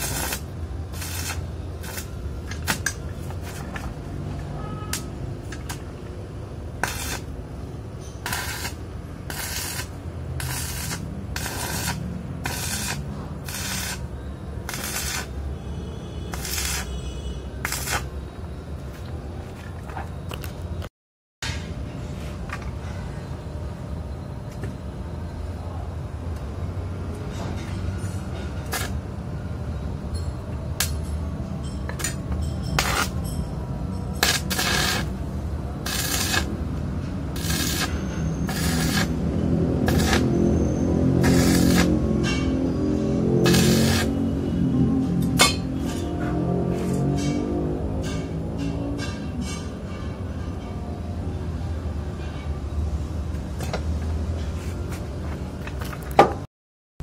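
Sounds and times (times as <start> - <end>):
welding arc crackling and hissing: 0.0 - 4.3, 6.8 - 15.5, 16.3 - 18.2, 28.6 - 29.1, 32.8 - 33.2, 34.2 - 40.4, 41.0 - 42.4, 43.3 - 44.2.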